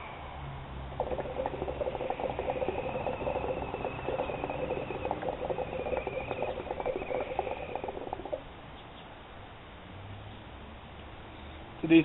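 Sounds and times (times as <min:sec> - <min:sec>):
hookah water bubbling: 0:00.9 - 0:08.5.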